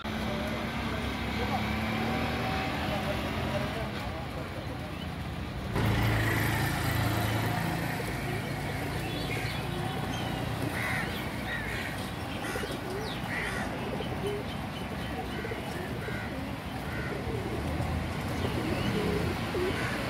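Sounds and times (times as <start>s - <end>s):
birds chirping: 0.0s - 20.0s
low traffic rumble: 0.0s - 20.0s
pigeons cooing: 5.8s - 20.0s.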